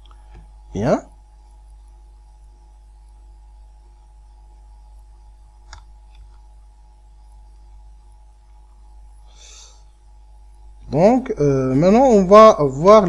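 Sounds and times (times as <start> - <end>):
low electrical hum: 0.0 - 13.0
computer mouse clicks: 5.7 - 6.4.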